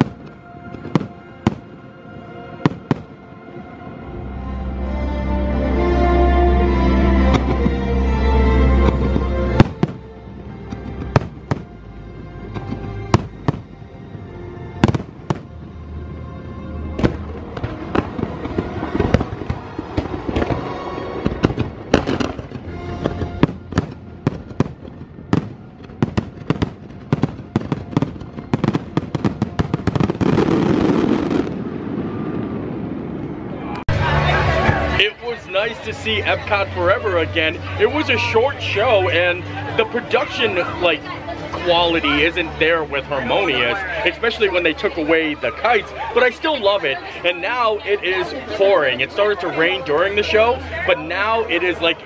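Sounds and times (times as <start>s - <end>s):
fireworks bangs and crackles: 0.0s - 3.7s, 7.3s - 7.8s, 8.8s - 11.8s, 12.4s - 16.2s, 16.8s - 40.8s
orchestral show music: 0.0s - 32.0s, 33.7s - 52.0s.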